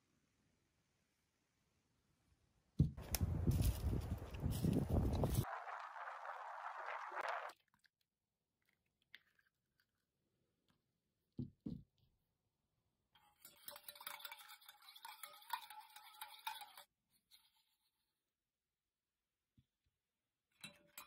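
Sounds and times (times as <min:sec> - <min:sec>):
whisk clinking against bowl: 0:13.4 - 0:16.8.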